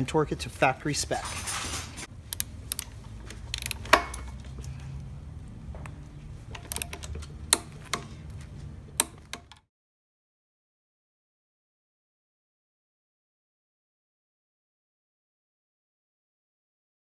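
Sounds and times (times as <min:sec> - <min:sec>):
steady low hum: 0:00.0 - 0:09.7
torque wrench ratcheting clicks: 0:02.3 - 0:04.4, 0:06.5 - 0:08.0.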